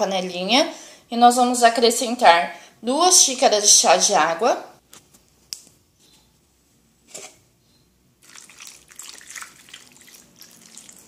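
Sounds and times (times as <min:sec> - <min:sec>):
water pouring into saucepan: 0:08.2 - 0:11.0.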